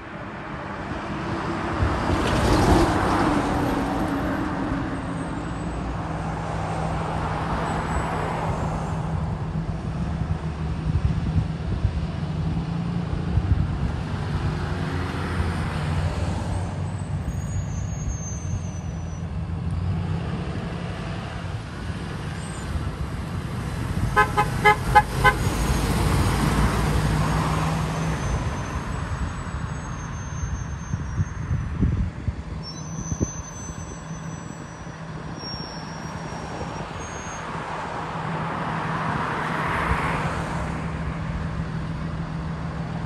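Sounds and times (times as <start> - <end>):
bus diesel engines running: 0.0 - 43.0
horn short toots: 24.1 - 25.8.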